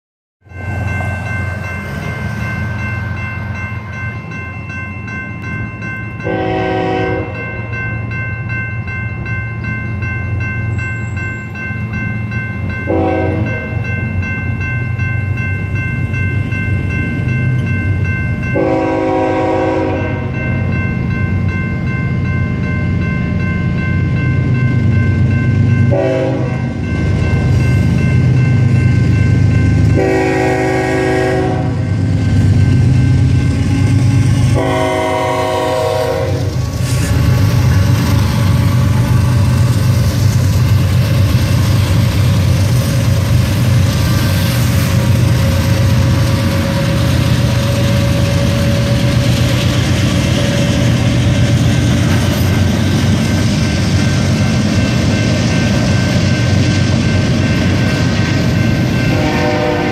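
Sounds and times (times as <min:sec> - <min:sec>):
crossing bell ringing: 0:00.4 - 0:59.9
diesel locomotive rumble: 0:00.4 - 0:59.9
train air horn blasts: 0:06.2 - 0:07.4, 0:12.9 - 0:13.7, 0:18.6 - 0:20.4, 0:25.9 - 0:26.8, 0:29.9 - 0:32.0, 0:34.4 - 0:37.2, 0:59.1 - 0:59.9.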